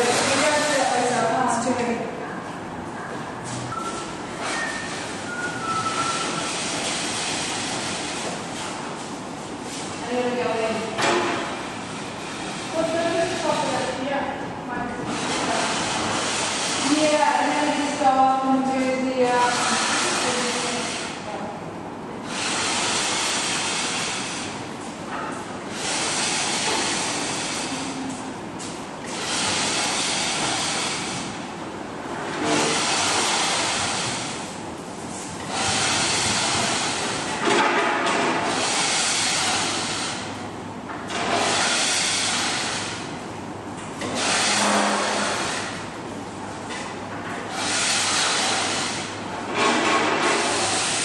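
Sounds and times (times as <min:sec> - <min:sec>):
scraper scraping paint: 0:19.4 - 0:21.1, 0:44.0 - 0:45.8, 0:47.5 - 0:49.1.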